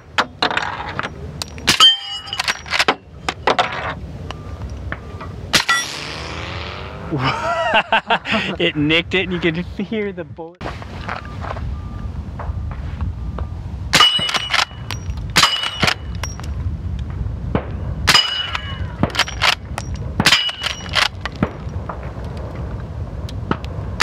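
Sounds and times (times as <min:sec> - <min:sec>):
steel targets clanging: 0:00.0 - 0:04.0, 0:04.6 - 0:06.2, 0:13.9 - 0:16.6, 0:18.1 - 0:21.9.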